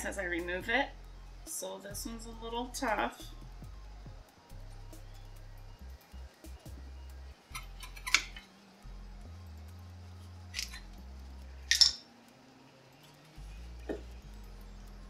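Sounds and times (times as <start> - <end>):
quiet background music: 0.0 - 15.0
metal clicking and scraping: 7.5 - 8.5, 11.7 - 12.0.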